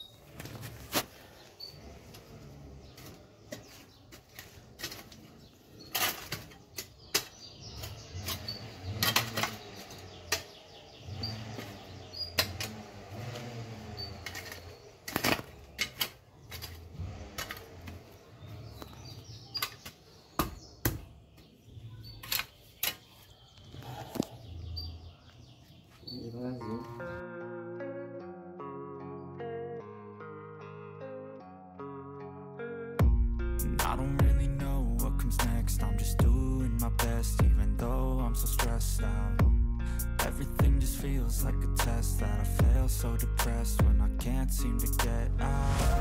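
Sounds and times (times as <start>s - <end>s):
hand hoe chopping and scraping soil: 2.9s - 10.6s, 11.3s - 18.2s.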